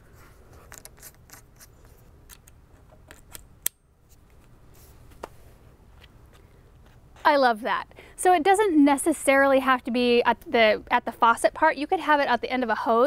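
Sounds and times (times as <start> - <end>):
metallic fitting clicks and scraping: 0.6 - 3.8.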